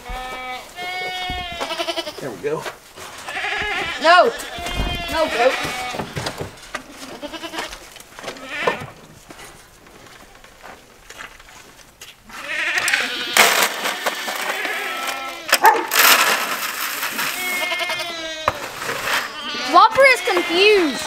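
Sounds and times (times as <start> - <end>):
goats bleating: 0.0 - 2.4, 3.1 - 9.0, 12.3 - 15.6, 17.0 - 21.0.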